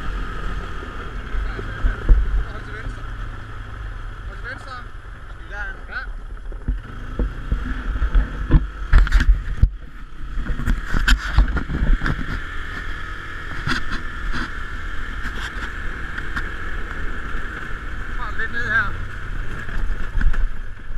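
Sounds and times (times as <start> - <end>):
wind rumbling on microphone: 0.0 - 4.3, 6.1 - 18.2
atv engine running: 0.0 - 20.9.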